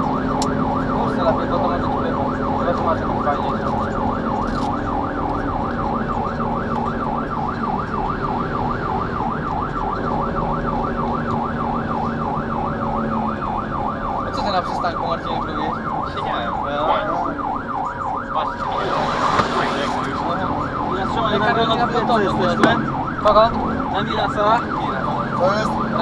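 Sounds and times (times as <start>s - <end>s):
electronic siren sweeping: 0.0s - 26.0s
diesel engine drone: 17.0s - 26.0s.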